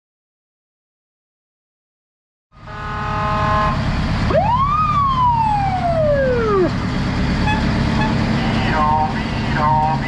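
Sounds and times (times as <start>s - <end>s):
fire engine horn blast: 2.5s - 4.1s, 7.4s - 10.0s
fire engine siren: 2.6s - 10.0s
truck engine rumble: 2.6s - 10.0s.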